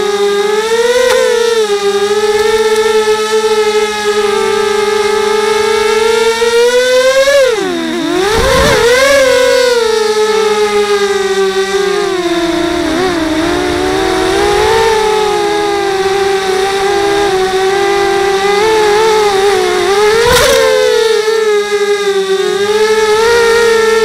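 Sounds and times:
drone motors whining: 0.0 - 24.0.

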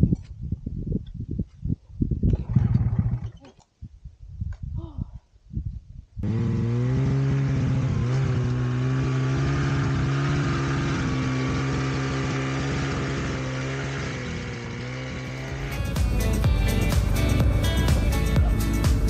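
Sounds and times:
snowmobile engine running: 6.2 - 19.0.

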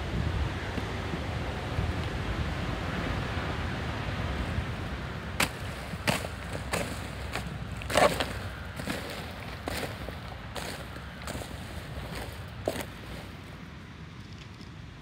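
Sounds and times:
wind rumbling on microphone: 0.0 - 15.0
rake scraping through mulch: 5.4 - 13.6.

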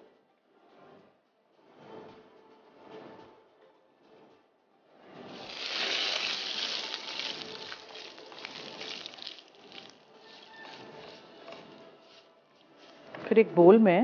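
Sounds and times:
noodles sizzling in hot oil: 5.2 - 10.6.

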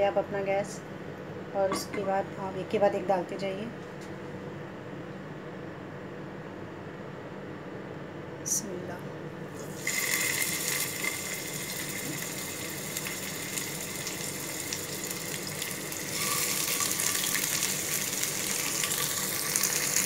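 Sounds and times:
meat sizzling in frying pan: 9.6 - 20.0.

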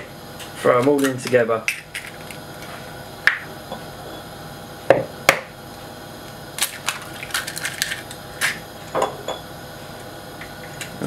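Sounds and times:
eggshell crackling: 6.5 - 8.6.

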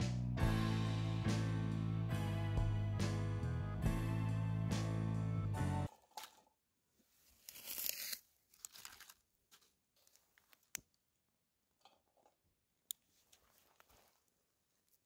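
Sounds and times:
soft crackles: 7.0 - 11.1, 12.9 - 15.0.

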